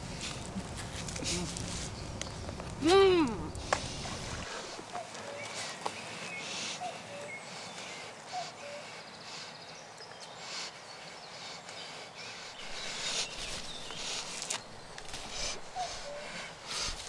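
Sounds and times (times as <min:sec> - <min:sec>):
woodland ambience: 0:00.0 - 0:17.0
bird chirp: 0:01.7 - 0:17.0
hissing breath through nose: 0:05.5 - 0:17.0.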